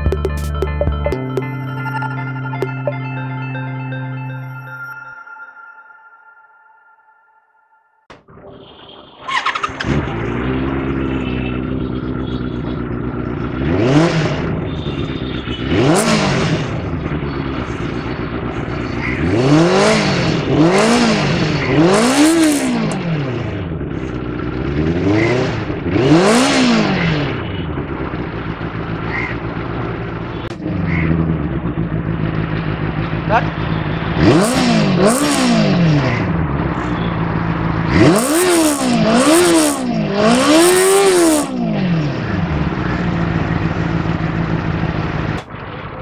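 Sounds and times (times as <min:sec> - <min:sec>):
motorcycle engine revving: 0:08.3 - 0:46.0.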